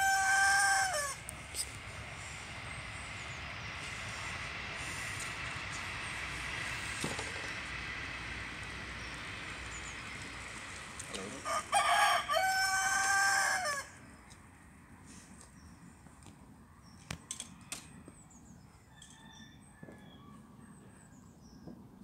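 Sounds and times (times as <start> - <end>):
rooster crowing: 0.0 - 1.3, 11.2 - 14.1, 18.8 - 21.1.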